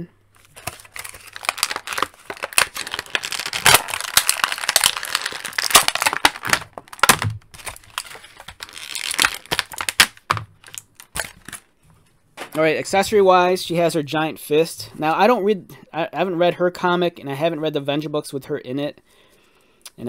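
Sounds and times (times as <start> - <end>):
plastic bag crinkling: 0.4 - 11.7.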